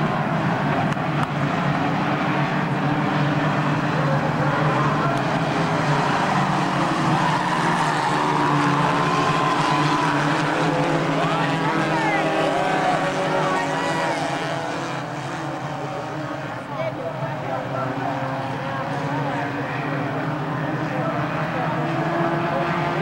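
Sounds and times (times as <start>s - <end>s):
race car engines droning: 0.0s - 23.0s.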